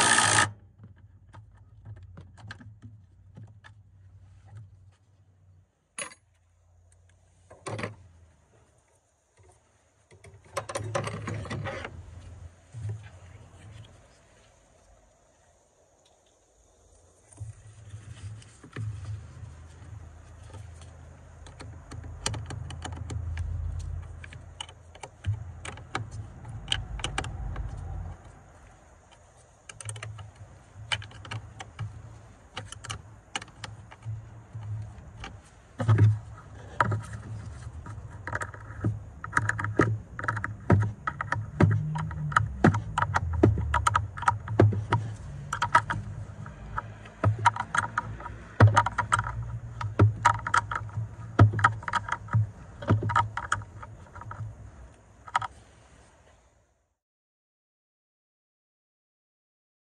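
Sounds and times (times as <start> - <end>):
low rumble of handling: 0.7 - 56.8
wrench and metal hardware clicking: 6.0 - 6.3.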